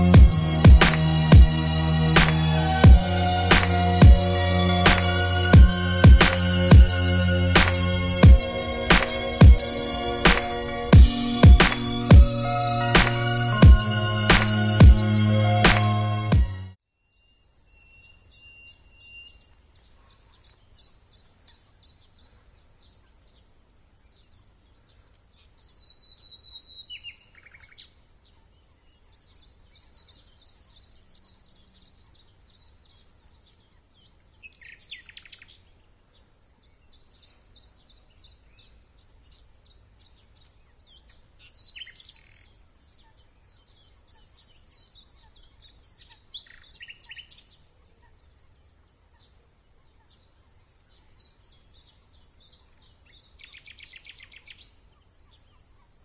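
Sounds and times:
songbird song phrase: 0:00.0 - 0:15.9, 0:16.5 - 0:56.0
faint high bird chirping: 0:16.9 - 0:56.0.

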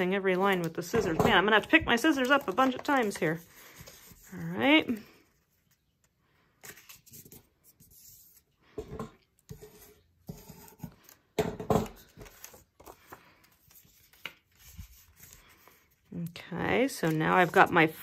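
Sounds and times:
paper rustling and scraping: 0:00.4 - 0:08.5, 0:11.8 - 0:16.1, 0:16.8 - 0:18.0.

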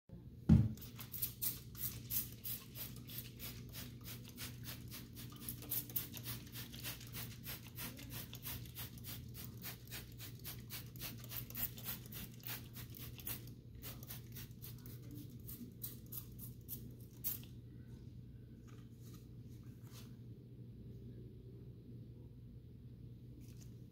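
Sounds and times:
low steady hum: 0:00.1 - 0:23.9
trigger spray bottle spraying: 0:00.8 - 0:15.0.

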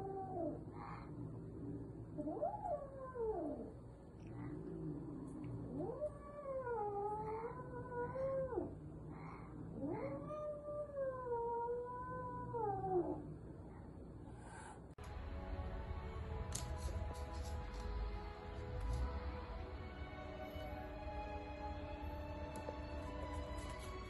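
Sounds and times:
cat yowling: 0:00.0 - 0:00.7, 0:05.7 - 0:08.7, 0:09.8 - 0:13.2.

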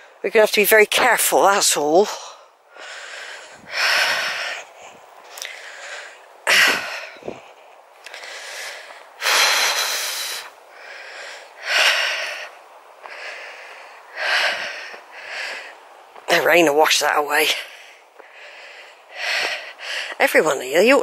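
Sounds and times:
heavy hoarse breathing: 0:02.4 - 0:16.2, 0:17.6 - 0:20.2.

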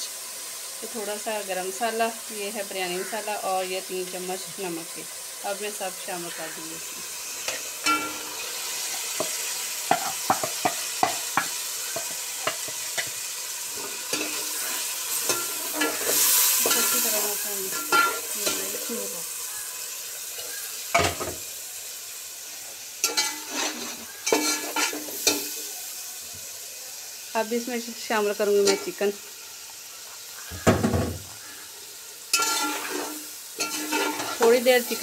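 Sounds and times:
food sizzling in hot oil: 0:00.0 - 0:35.0
metal spatula scraping a pot: 0:13.7 - 0:18.7, 0:23.0 - 0:25.6, 0:32.3 - 0:35.0.

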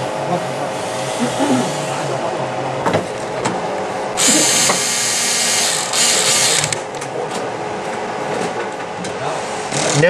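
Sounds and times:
electric screwdriver running: 0:04.2 - 0:06.8.

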